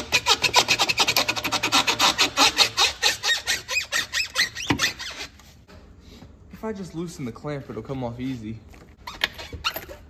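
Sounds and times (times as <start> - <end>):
squeaks: 0.0 - 5.4, 9.0 - 10.0.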